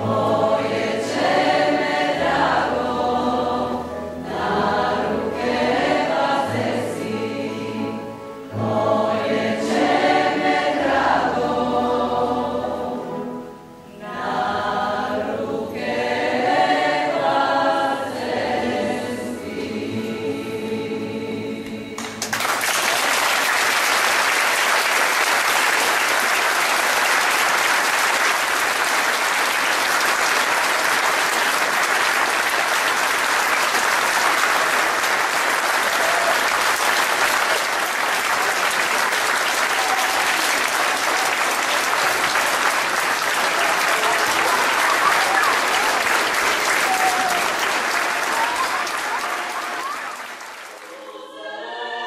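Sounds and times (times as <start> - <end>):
choir holding a chord: 0.0 - 22.3, 50.8 - 52.0
audience applause: 22.0 - 51.1.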